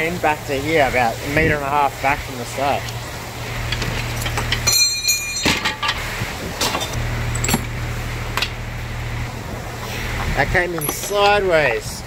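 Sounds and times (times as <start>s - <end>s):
tools shifted on wooden workbench: 3.7s - 7.7s
ringing metal clank: 4.2s - 6.0s.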